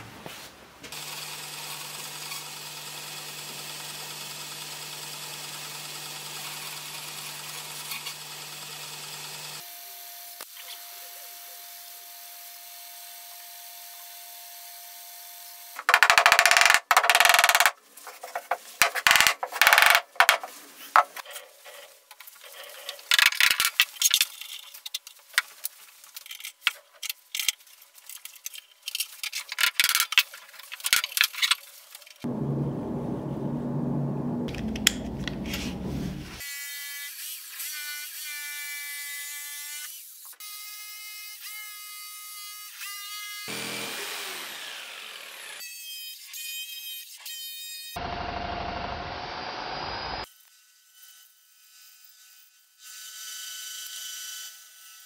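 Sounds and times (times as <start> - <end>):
bandsaw cutting wood: 43.5 - 45.6.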